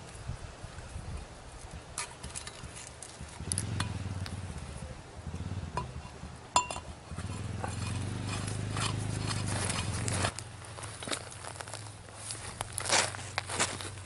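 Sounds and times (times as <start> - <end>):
low steady hum: 2.4 - 14.0
metal pipe fittings clinking: 6.6 - 9.9.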